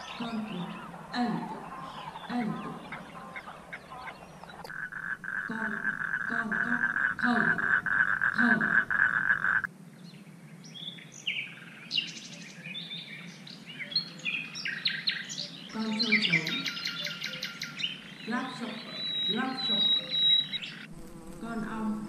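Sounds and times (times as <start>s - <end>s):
frog croaks: 0.0s - 9.7s
frog trilling: 0.0s - 9.7s.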